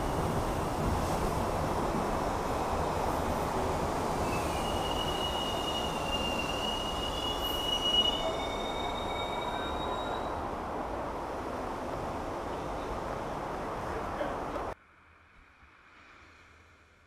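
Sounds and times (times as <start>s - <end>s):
train cars rumbling past: 0.0s - 14.8s
high wheel squeal: 4.2s - 10.4s.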